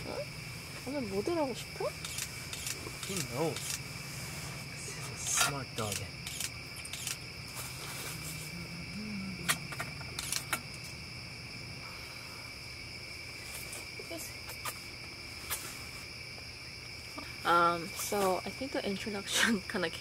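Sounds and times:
night insects chirping: 0:00.0 - 0:20.0.

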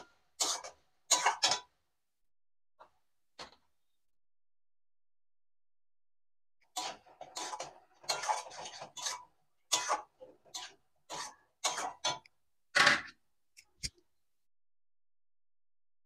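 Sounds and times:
spatula scraping a pan: 0:00.0 - 0:01.7, 0:06.6 - 0:12.3.

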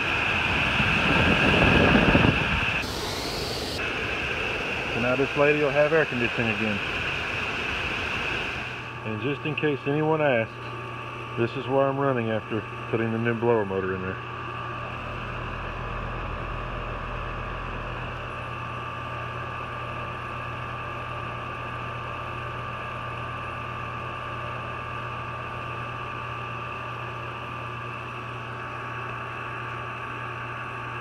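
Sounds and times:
thin high whine: 0:00.0 - 0:20.0
air conditioner unit humming: 0:00.0 - 0:31.0.

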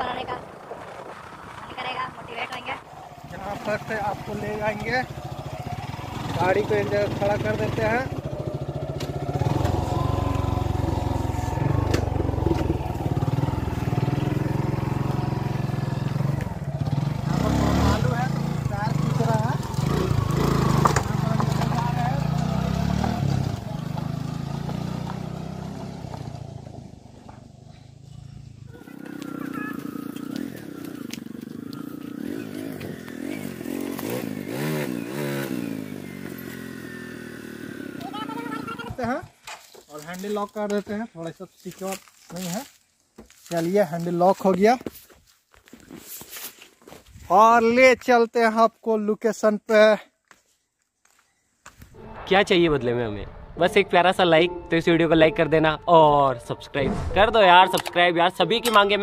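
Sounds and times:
motorcycle engine running: 0:01.2 - 0:39.3.

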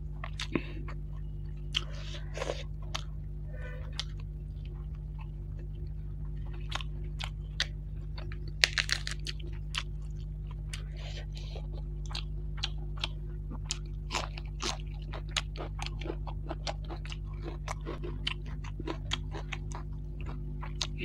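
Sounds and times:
steady low hum: 0:00.0 - 0:21.0
person chewing: 0:00.2 - 0:21.0
leaf tearing crackles: 0:08.6 - 0:09.4.

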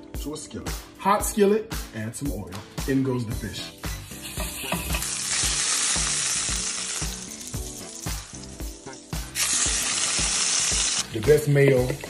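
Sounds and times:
faint background music: 0:00.0 - 0:12.0
patty sizzling in hot oil: 0:03.8 - 0:11.2.

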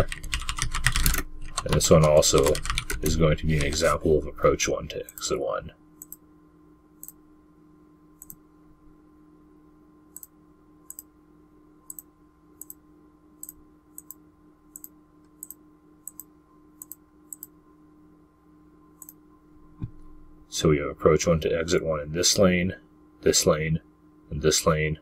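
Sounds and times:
faint electrical hum: 0:00.0 - 0:25.0
computer mouse clicking: 0:06.0 - 0:06.2, 0:08.2 - 0:08.4, 0:10.9 - 0:11.1, 0:11.9 - 0:12.8, 0:13.4 - 0:17.5.

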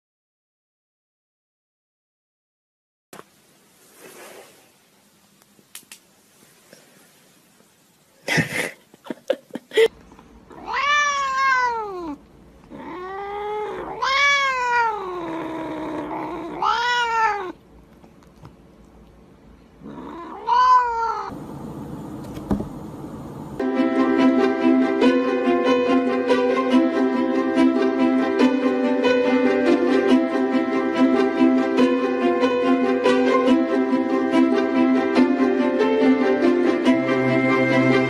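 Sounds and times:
cat meowing loudly: 0:10.5 - 0:15.3, 0:16.1 - 0:17.6, 0:19.9 - 0:21.3
knocks and rustles: 0:22.2 - 0:22.8.

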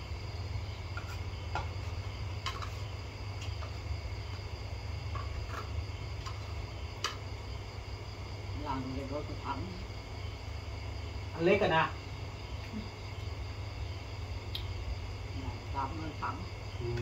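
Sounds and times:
crickets chirping: 0:00.0 - 0:17.0
low steady hum: 0:00.0 - 0:17.0.

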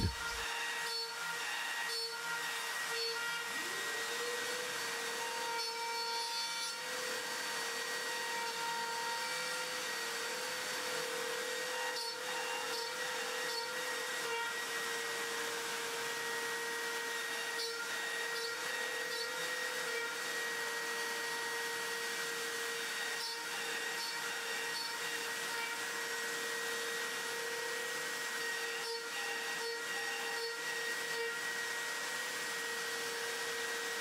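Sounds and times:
router bit cutting board: 0:00.0 - 0:34.0
router spindle high whine: 0:00.0 - 0:34.0.

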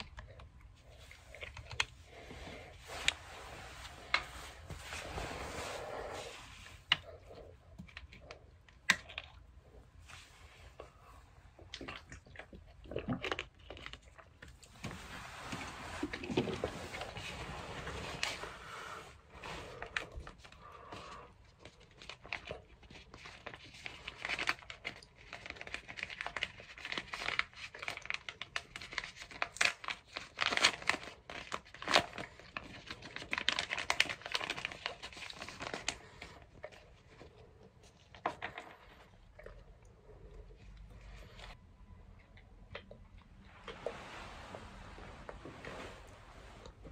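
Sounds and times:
plastic packet rustling and crackling: 0:21.4 - 0:39.5.

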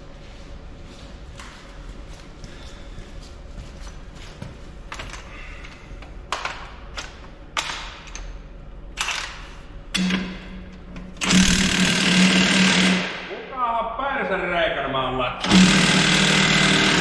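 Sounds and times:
impact wrench hammering: 0:10.0 - 0:10.5, 0:11.1 - 0:13.3, 0:15.4 - 0:17.0.

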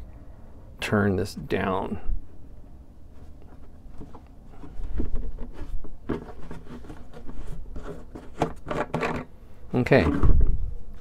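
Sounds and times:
plastic cap scraping on threads: 0:03.3 - 0:09.3.

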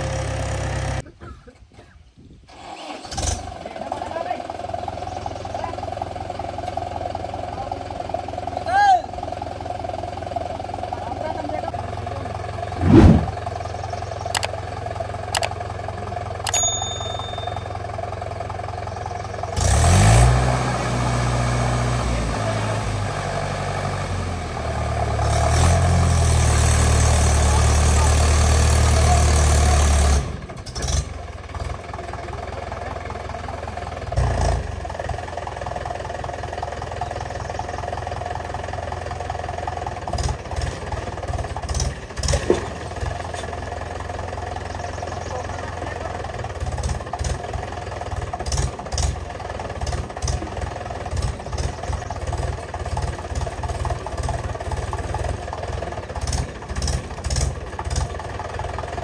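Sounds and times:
diesel tractor engine revving: 0:11.8 - 0:16.5, 0:18.1 - 0:59.0
sharp clicks: 0:14.3 - 0:14.6, 0:15.4 - 0:15.6.

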